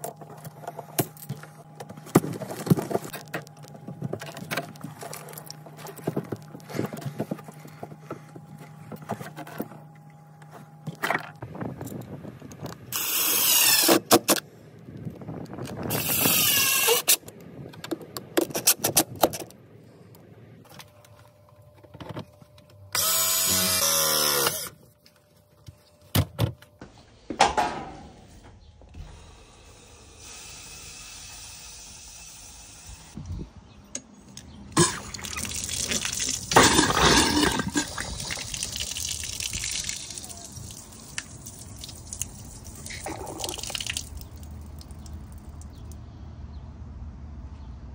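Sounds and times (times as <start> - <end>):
cordless drill driving screws: 23.0 - 24.7
water splashing onto ground: 34.8 - 45.8.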